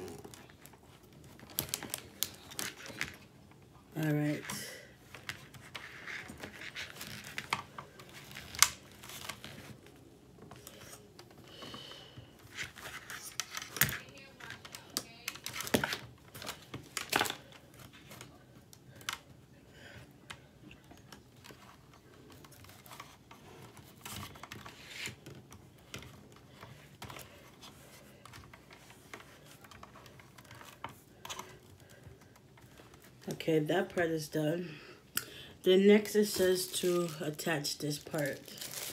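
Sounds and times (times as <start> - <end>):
rustling: 36.1 - 38.9.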